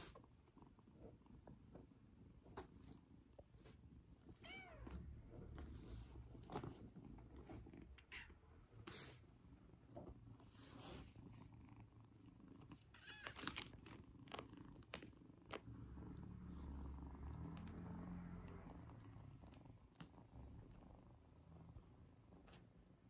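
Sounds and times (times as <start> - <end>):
kitten purring: 0.0 - 23.0
soft clicks and rustles: 9.8 - 15.9.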